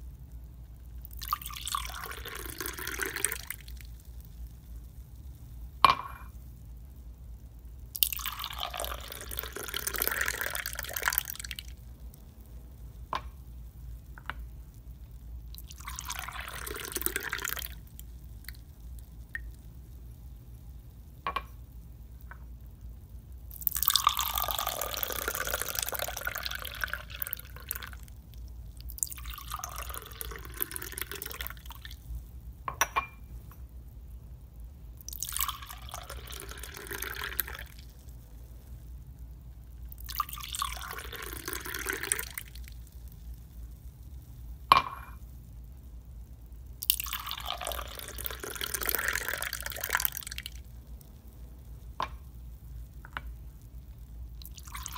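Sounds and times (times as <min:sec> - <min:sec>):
liquid pouring into a glass: 0:01.1 - 0:03.8, 0:07.9 - 0:11.8, 0:15.5 - 0:17.9, 0:23.5 - 0:28.0, 0:28.8 - 0:31.9, 0:35.1 - 0:37.9, 0:39.9 - 0:42.7, 0:46.8 - 0:50.6, 0:54.4 - 0:54.9.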